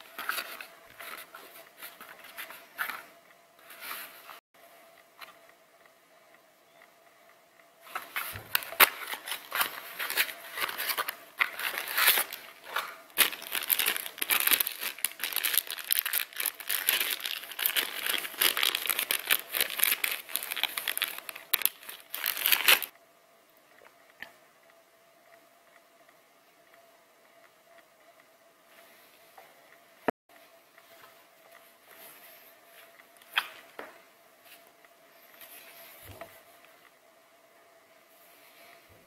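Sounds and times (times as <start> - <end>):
plastic bag crinkling and tearing: 8.3 - 22.9.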